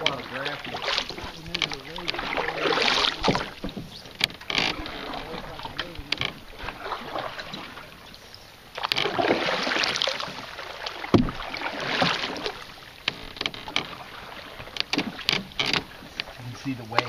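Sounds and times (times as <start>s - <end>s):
paddle strokes through water: 0.0s - 17.0s.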